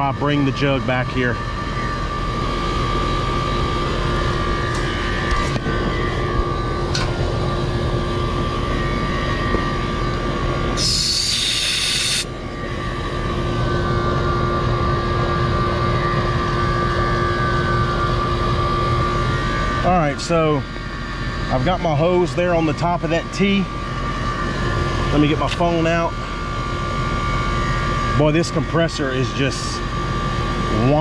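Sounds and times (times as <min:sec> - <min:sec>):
compressor humming: 0:00.0 - 0:31.0
gas hissing from hose: 0:10.8 - 0:12.3.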